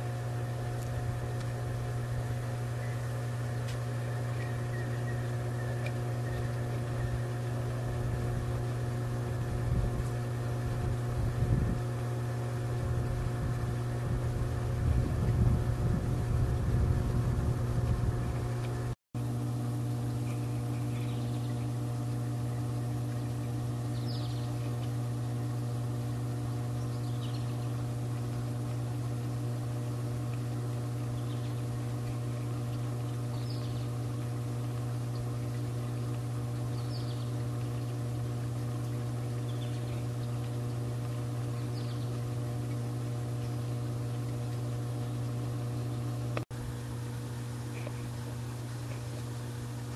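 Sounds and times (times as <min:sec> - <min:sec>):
low rumbling: 0:00.0 - 0:19.0
pool cleaner motor humming: 0:00.0 - 0:49.9.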